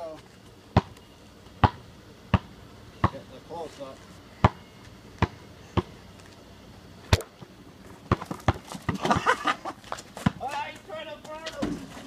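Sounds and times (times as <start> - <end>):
basketball bouncing on asphalt: 0.7 - 3.2, 4.4 - 6.0, 7.1 - 12.0.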